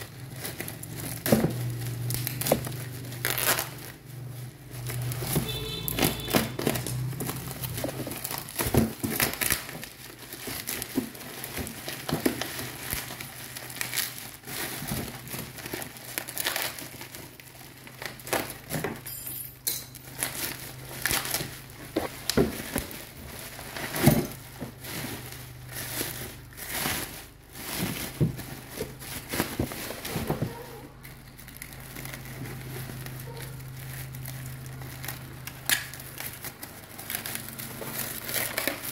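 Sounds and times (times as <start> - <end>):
bubble wrap crinkling and crackling: 0.0 - 19.2, 19.9 - 38.9.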